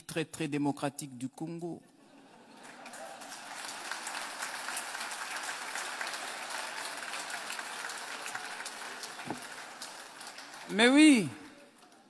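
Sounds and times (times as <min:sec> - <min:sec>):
audience applause: 0:02.4 - 0:12.0.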